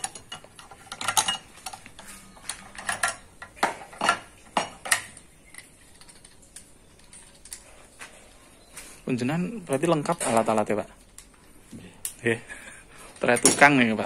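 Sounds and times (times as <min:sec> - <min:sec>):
metal parts clinking: 0:00.0 - 0:07.8.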